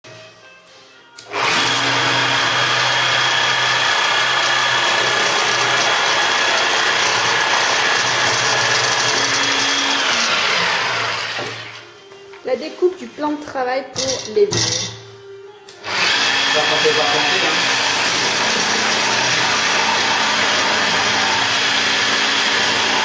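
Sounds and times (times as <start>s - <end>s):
jigsaw cutting with whine: 1.2s - 11.9s, 15.8s - 23.0s.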